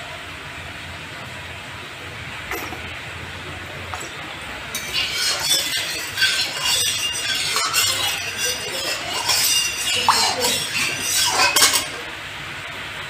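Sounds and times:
oil sizzling and crackling: 0:02.2 - 0:13.0
metal spatula scraping a pan: 0:02.5 - 0:02.8, 0:03.9 - 0:12.1.

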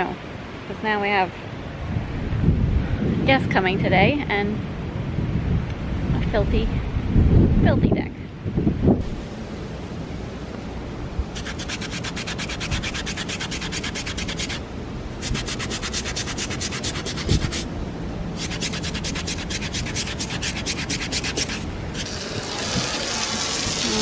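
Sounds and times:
toothbrush scrubbing foam pad: 0:11.4 - 0:14.6, 0:15.2 - 0:17.7, 0:18.4 - 0:22.1.

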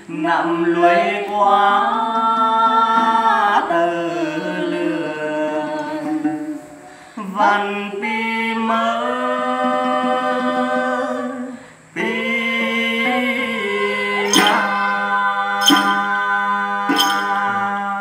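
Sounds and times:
person singing long sliding notes: 0:12.1 - 0:17.8
plucked lute strokes: 0:14.2 - 0:17.8.

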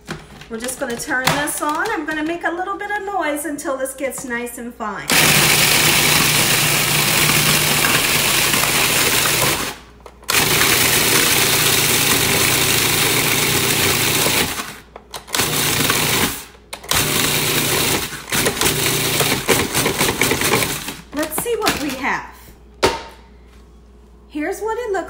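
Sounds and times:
food processor grinding: 0:05.1 - 0:21.9.

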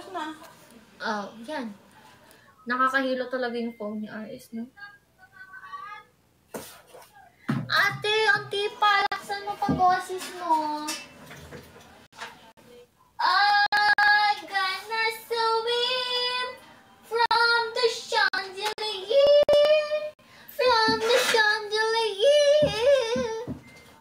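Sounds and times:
woman singing with vibrato: 0:07.7 - 0:11.0, 0:13.2 - 0:23.7
singer breathing: 0:20.2 - 0:20.6.

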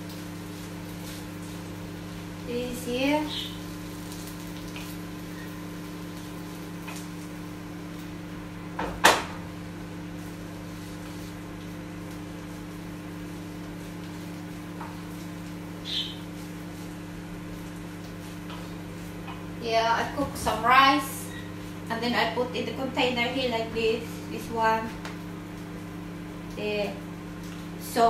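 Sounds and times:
microwave oven humming: 0:00.0 - 0:28.0.

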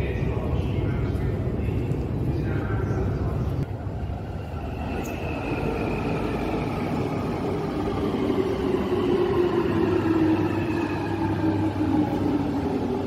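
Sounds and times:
train rumble: 0:00.0 - 0:13.0.

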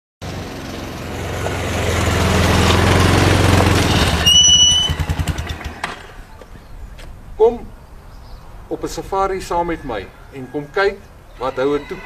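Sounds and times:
large vehicle engine: 0:00.2 - 0:06.5
engine pulsing idle: 0:00.4 - 0:06.2
brake squeal: 0:01.4 - 0:06.3.

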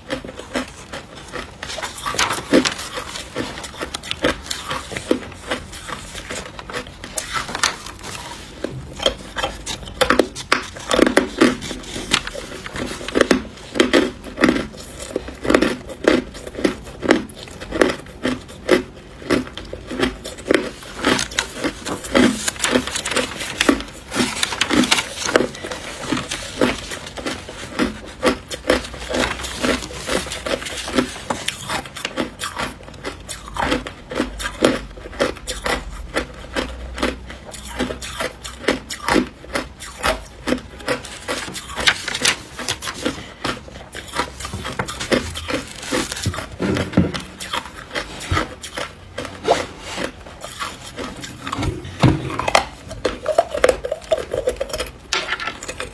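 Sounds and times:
ice being crunched and chewed: 0:00.0 - 0:55.9.

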